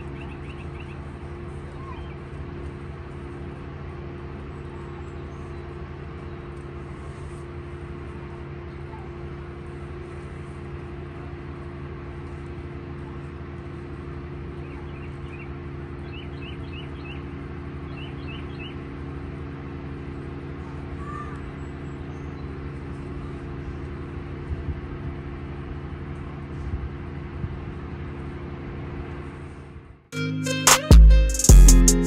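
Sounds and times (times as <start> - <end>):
bird chirping: 0.0 - 1.1
engine droning: 0.0 - 32.0.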